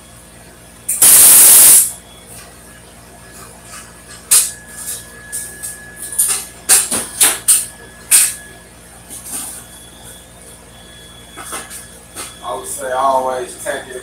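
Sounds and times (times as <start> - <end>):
welding arc crackling bursts: 0.9 - 2.0.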